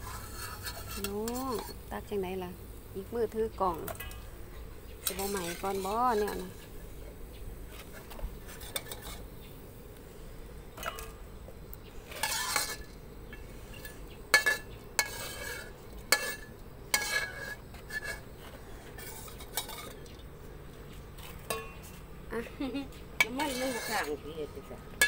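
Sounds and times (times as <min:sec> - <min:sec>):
metal spatula scraping wok: 0:00.0 - 0:01.9, 0:03.7 - 0:07.1, 0:07.7 - 0:09.4, 0:10.7 - 0:11.2, 0:12.0 - 0:20.2, 0:21.1 - 0:22.0, 0:23.2 - 0:25.0.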